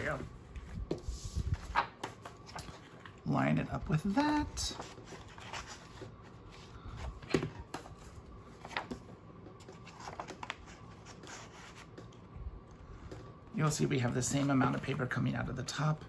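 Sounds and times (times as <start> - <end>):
paper rustling: 0.0 - 3.3, 3.9 - 12.2.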